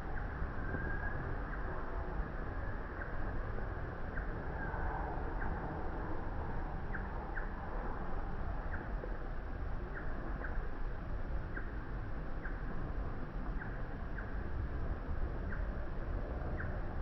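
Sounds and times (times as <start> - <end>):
wind noise on microphone: 0.0 - 17.0.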